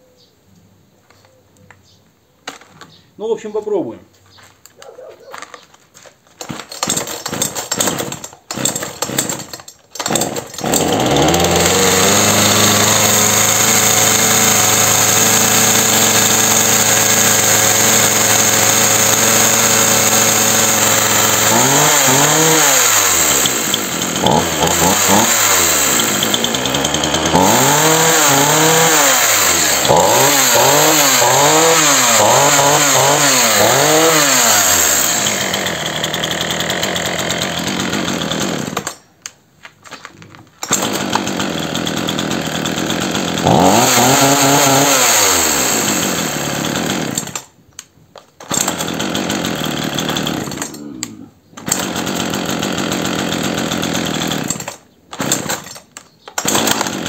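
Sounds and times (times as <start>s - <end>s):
starter cord pulls: 6.4s - 13.2s, 18.8s - 41.6s, 54.2s - 57.0s
chainsaw engine idling and revving: 6.4s - 39.0s, 40.6s - 47.5s, 48.4s - 57.0s.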